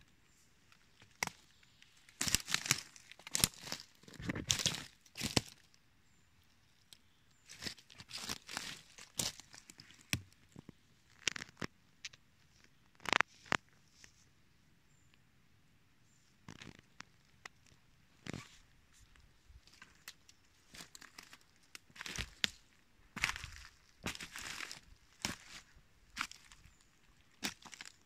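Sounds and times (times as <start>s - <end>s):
dry leaves crunching underfoot: 1.0s - 5.7s, 7.5s - 10.2s, 19.6s - 28.0s.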